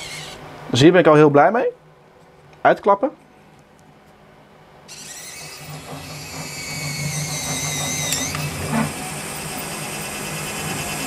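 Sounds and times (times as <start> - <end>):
small electric motor whirring: 0.0 - 0.4, 4.9 - 11.0.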